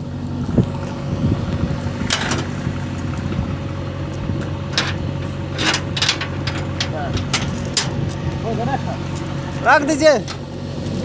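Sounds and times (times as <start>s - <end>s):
diesel engine idling: 0.0s - 11.0s
steel chain clinking: 4.7s - 8.2s, 9.1s - 11.0s.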